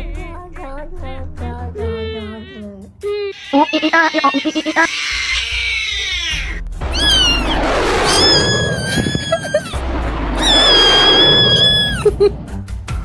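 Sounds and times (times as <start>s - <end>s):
high-pitched screaming: 3.4s - 9.8s, 10.4s - 12.1s
low rumble: 6.8s - 12.7s.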